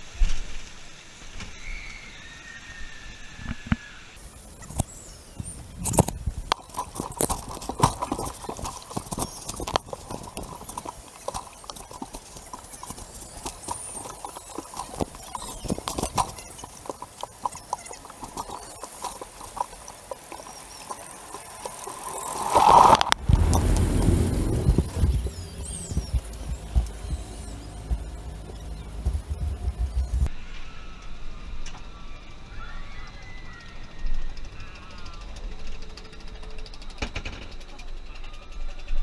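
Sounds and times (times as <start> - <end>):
water slapping hull: 5.9 - 30.3
water rush: 6.5 - 29.5.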